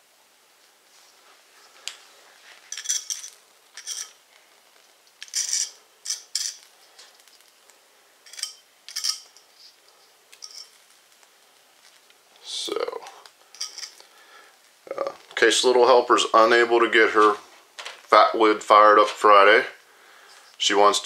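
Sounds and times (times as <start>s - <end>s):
knife blade scraping concrete: 2.7s - 4.2s, 5.2s - 6.7s, 8.3s - 9.3s.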